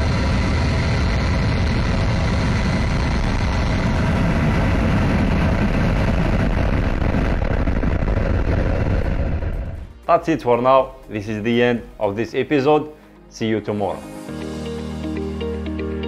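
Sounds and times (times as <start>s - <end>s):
rocket engines roaring: 0.0s - 12.0s.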